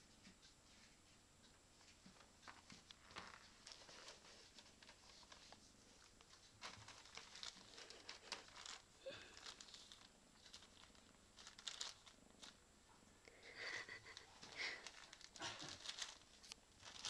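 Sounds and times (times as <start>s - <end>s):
plastic bag crinkling: 2.9s - 12.6s, 13.6s - 17.0s.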